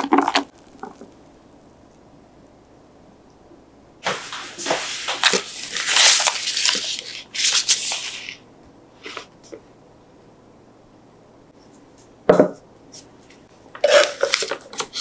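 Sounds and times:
plastic bag crinkling: 0:04.0 - 0:08.4.

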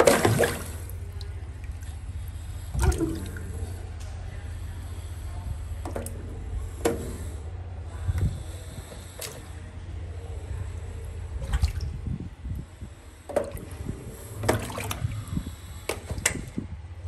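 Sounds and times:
water splashing: 0:00.0 - 0:04.0, 0:11.2 - 0:12.2, 0:13.2 - 0:16.5
steady low rumble: 0:00.0 - 0:17.0.

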